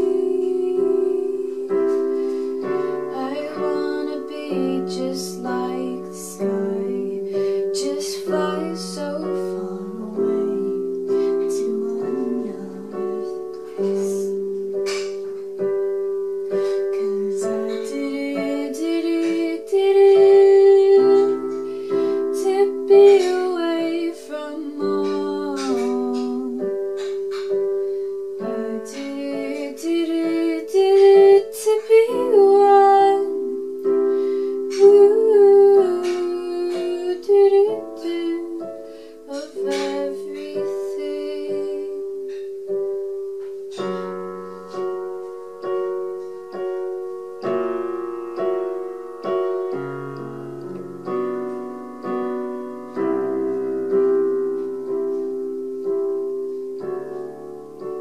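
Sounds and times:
woman singing: 0:00.0 - 0:14.7, 0:16.5 - 0:27.2, 0:28.4 - 0:42.2
digital piano chords: 0:00.0 - 0:58.0.

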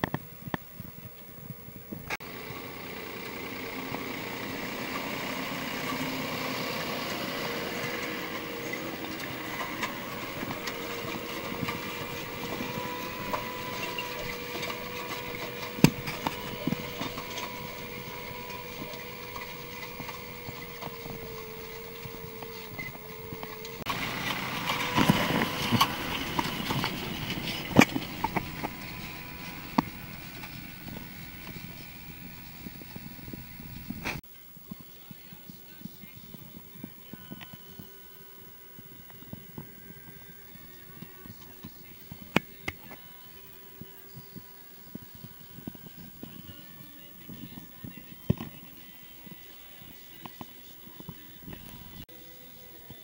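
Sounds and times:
steady whine: 0:00.0 - 0:53.0
tractor engine running: 0:00.0 - 0:53.0
planter knocks and clatter: 0:02.1 - 0:34.2.

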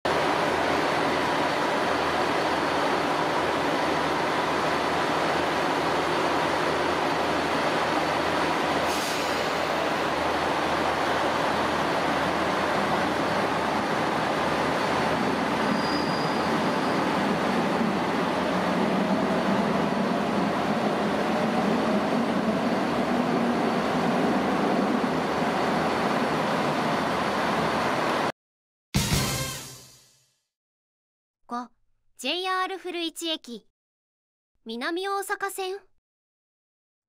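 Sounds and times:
train rumble and rail noise: 0:00.1 - 0:28.3
high squeal: 0:15.2 - 0:17.3.

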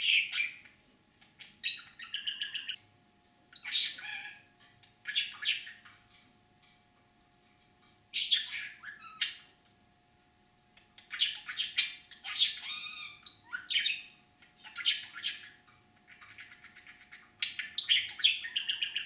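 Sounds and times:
budgerigar chattering: 0:01.4 - 0:02.8, 0:11.0 - 0:19.0.

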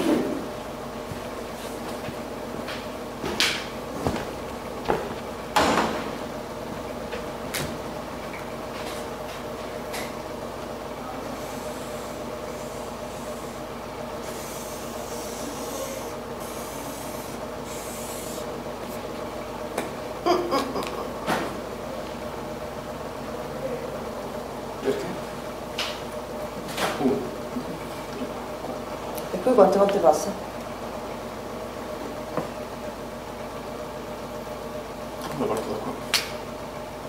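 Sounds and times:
steady hum: 0:00.0 - 0:37.0
marker scratching on paper: 0:14.2 - 0:19.0.

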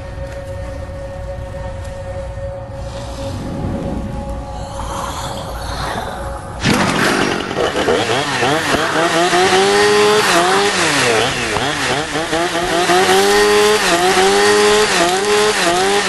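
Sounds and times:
chainsaw revving: 0:06.6 - 0:16.0.

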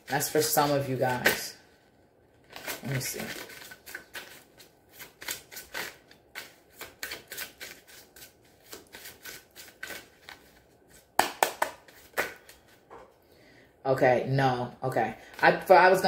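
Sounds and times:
cards being shuffled: 0:02.4 - 0:12.9
cards snapping: 0:02.6 - 0:10.6.

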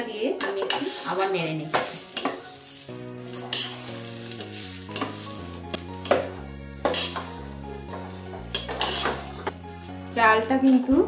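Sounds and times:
background music: 0:00.0 - 0:11.0
soft sizzling: 0:00.0 - 0:11.0
metal spatula scraping pot: 0:03.2 - 0:09.6.

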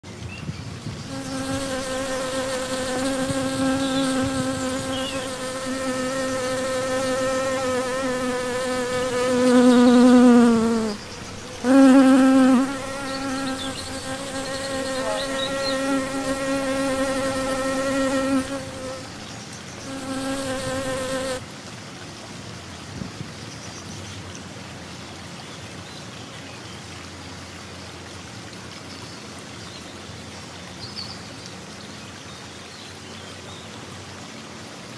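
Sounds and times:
faint hiss: 0:00.1 - 0:21.4
bee buzzing: 0:01.1 - 0:19.2, 0:19.8 - 0:21.4.

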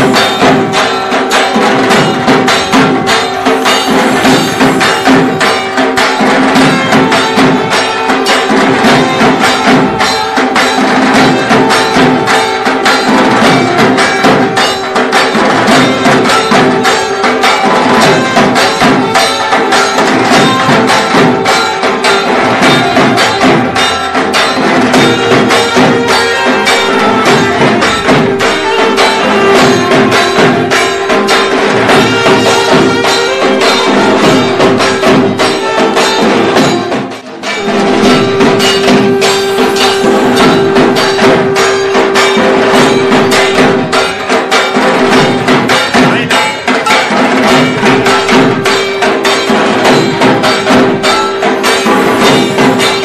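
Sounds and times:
folk music percussion: 0:00.0 - 0:53.0
drone-like held tones: 0:37.5 - 0:44.0.

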